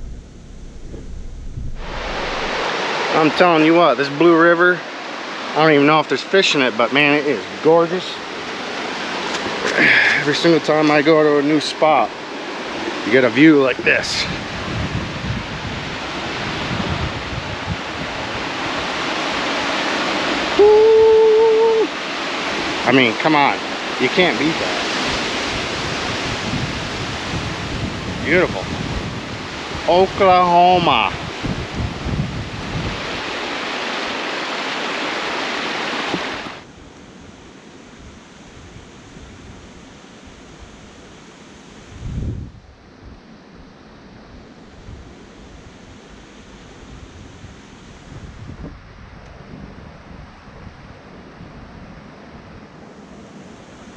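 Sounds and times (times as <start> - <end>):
wind on microphone: 0.0 - 3.7, 13.8 - 22.8, 24.6 - 34.4, 41.8 - 53.9
river rushing over rocks: 0.8 - 14.0, 15.5 - 26.3, 32.4 - 36.7
man shouting woo: 20.5 - 22.0.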